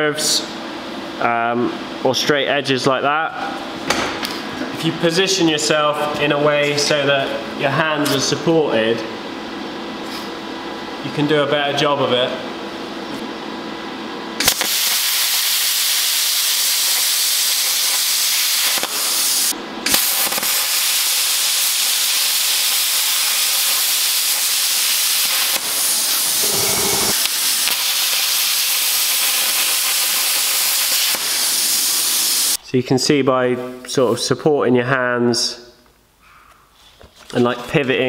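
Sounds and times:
plasma cutter hissing: 14.4s - 32.6s.

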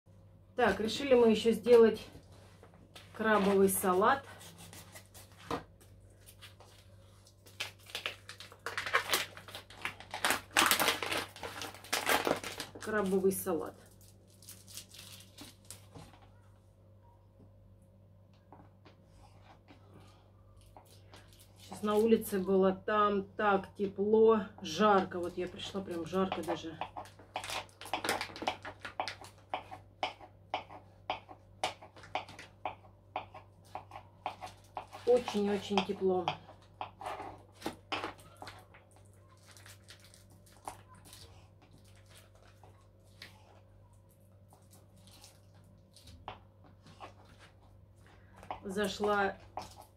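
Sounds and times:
plastic packet crinkling: 7.3s - 16.0s, 38.3s - 43.3s.

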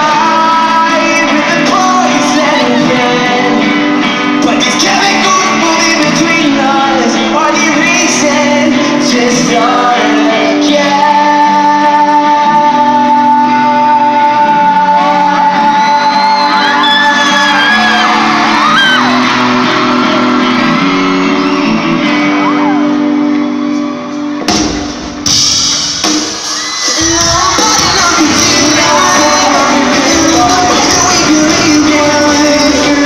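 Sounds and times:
crowd screaming and cheering: 0.0s - 33.0s
live rock band playing: 0.0s - 33.0s.

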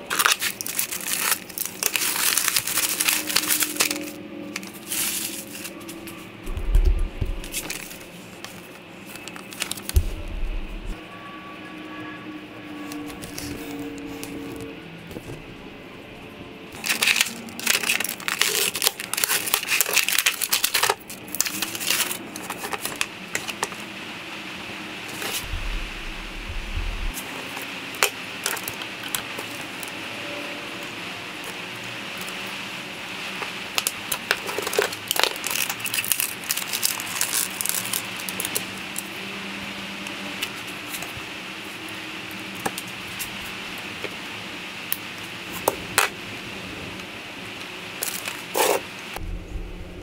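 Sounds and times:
plastic bag crinkling: 0.1s - 5.9s, 16.8s - 23.0s.

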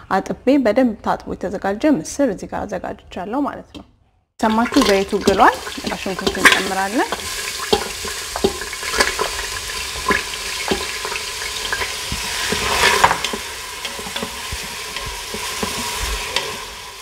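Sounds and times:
onion sizzling in hot oil: 4.5s - 17.0s
wooden spoon knocking and scraping: 10.0s - 16.6s.

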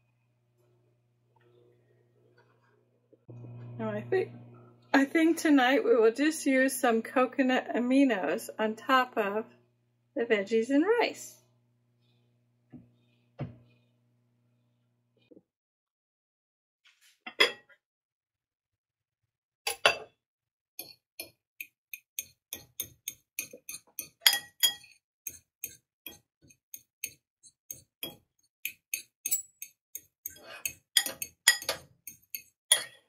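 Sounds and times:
fork clinking and scraping dish: 22.6s - 25.0s, 28.9s - 29.7s, 30.3s - 33.0s.

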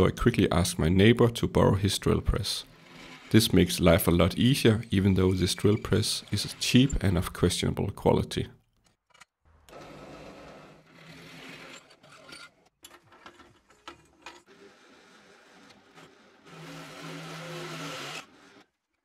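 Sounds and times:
drill press drilling steel: 14.5s - 18.7s.

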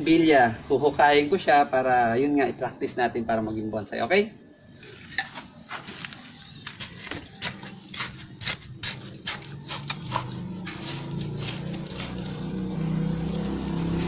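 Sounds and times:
trowel scraping dry soil: 5.2s - 14.0s.

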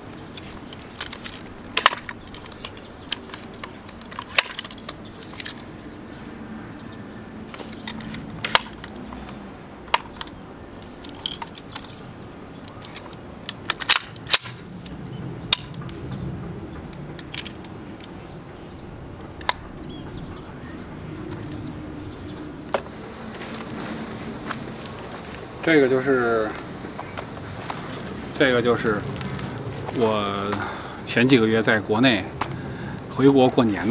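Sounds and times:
metallic clicks of rifle handling: 0.2s - 5.7s, 7.5s - 16.0s, 16.9s - 18.2s, 19.4s - 19.7s.

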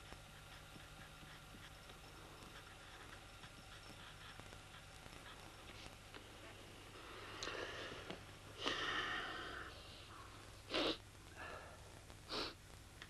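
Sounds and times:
pencil scratching on paper: 0.0s - 6.0s
low steady hum: 0.0s - 13.0s.

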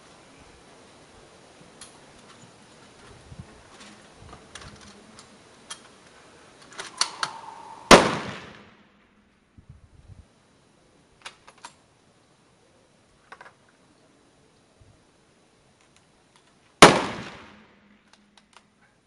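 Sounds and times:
rifle shot with echo: 7.0s - 8.8s, 16.8s - 17.7s.

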